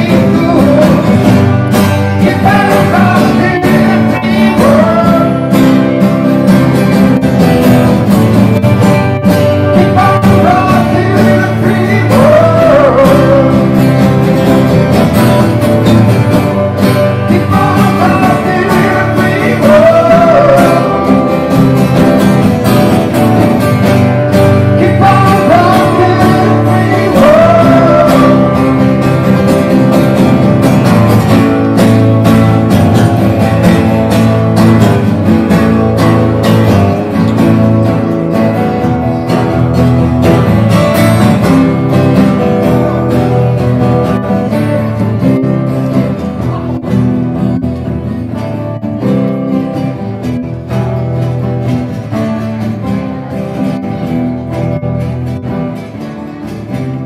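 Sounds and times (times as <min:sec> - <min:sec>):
man singing: 0:00.0 - 0:06.0, 0:09.4 - 0:14.2, 0:16.8 - 0:22.0, 0:24.2 - 0:29.4
acoustic guitars strumming: 0:00.0 - 0:57.0.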